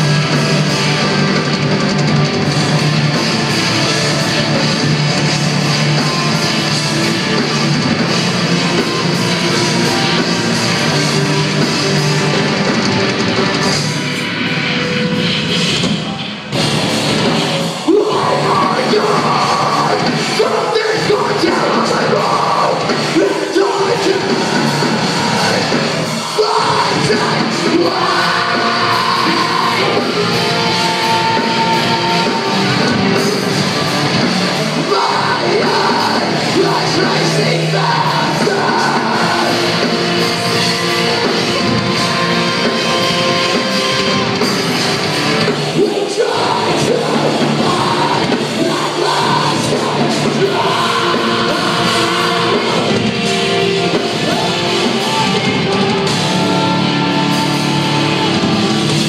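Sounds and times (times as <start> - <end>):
heavy rock band playing: 0.0 - 59.0
vocalist singing and shouting: 17.6 - 59.0.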